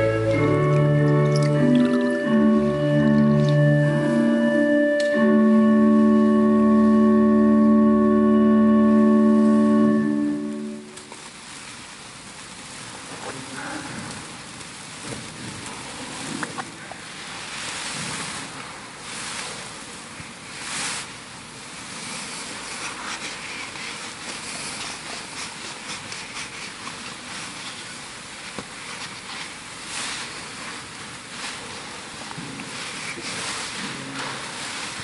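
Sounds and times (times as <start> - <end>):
hissing room noise: 0.0 - 35.0
rustles: 9.3 - 35.0.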